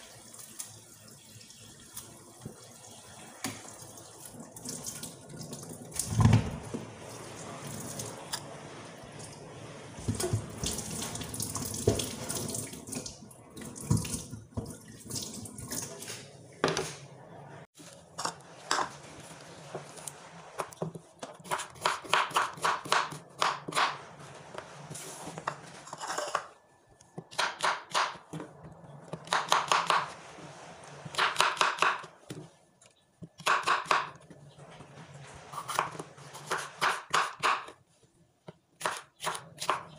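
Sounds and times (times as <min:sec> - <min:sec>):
kitchen tap running: 0:00.0 - 0:16.3.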